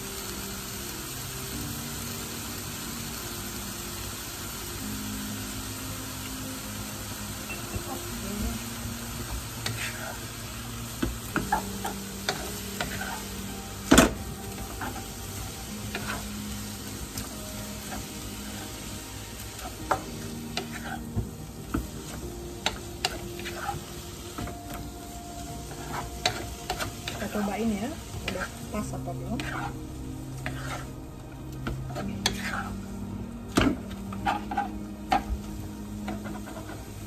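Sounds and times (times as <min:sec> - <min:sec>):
bean sprouts sizzling in a pan: 0:00.0 - 0:37.0
wooden spatula scraping a pan: 0:09.6 - 0:10.3, 0:11.0 - 0:13.5, 0:14.5 - 0:16.5, 0:19.6 - 0:24.5, 0:25.7 - 0:35.3, 0:36.0 - 0:37.0.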